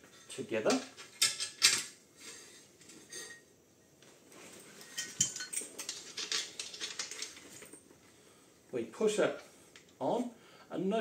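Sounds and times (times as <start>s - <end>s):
metal frame clinking: 4.7s - 7.8s.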